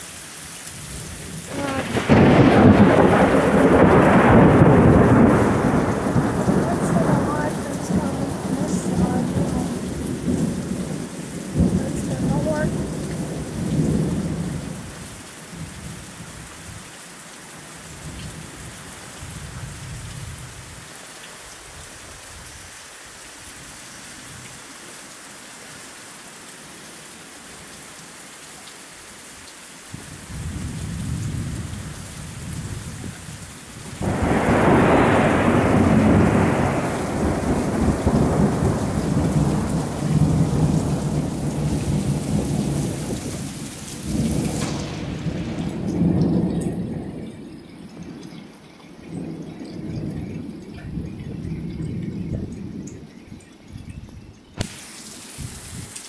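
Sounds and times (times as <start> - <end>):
heavy rain falling: 0.0 - 56.0
thunder rumbling: 0.8 - 16.8, 29.9 - 53.1.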